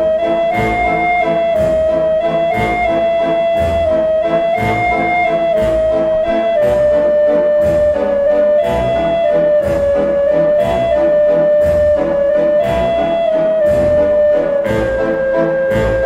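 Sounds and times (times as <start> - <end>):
slow melody of held notes: 0.0 - 16.0.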